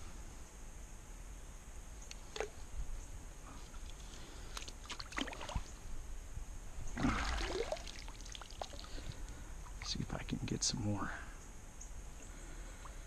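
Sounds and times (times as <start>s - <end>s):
water splashing and trickling: 3.7s - 5.8s, 6.9s - 10.0s.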